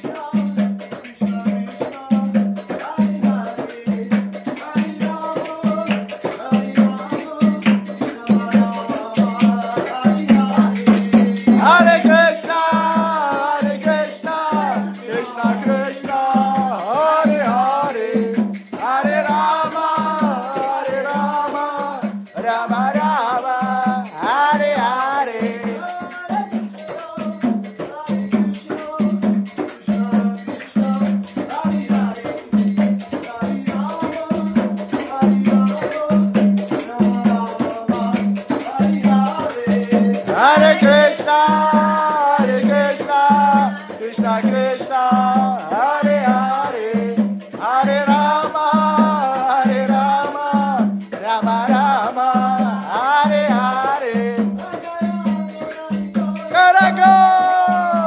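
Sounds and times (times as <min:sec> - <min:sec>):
drum beat: 0:00.0 - 0:58.0
hand cymbals clashing: 0:00.0 - 0:58.0
group chanting: 0:02.9 - 0:26.1, 0:38.8 - 0:54.2.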